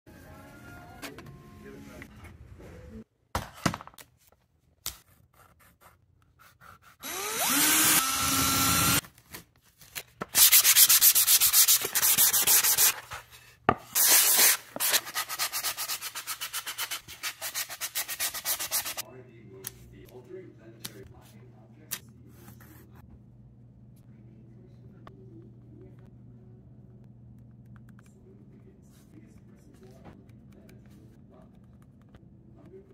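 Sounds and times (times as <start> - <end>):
sandpaper rubbing on wood: 10.4 - 13.0, 14.0 - 19.0.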